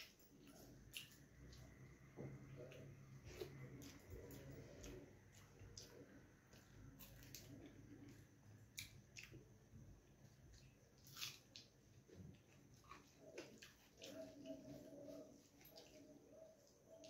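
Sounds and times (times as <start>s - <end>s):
chewing and mouth smacks: 2.6s - 9.6s, 12.3s - 14.7s.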